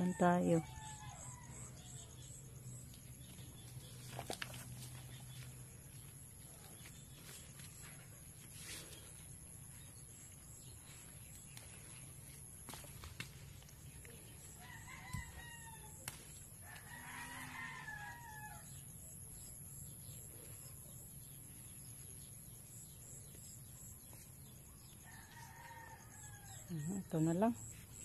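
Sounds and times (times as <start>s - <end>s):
rooster crowing: 0.0s - 2.3s, 14.5s - 16.0s, 16.6s - 18.8s, 25.0s - 26.7s
stems snapping: 4.0s - 4.8s, 12.6s - 13.8s, 16.0s - 16.4s.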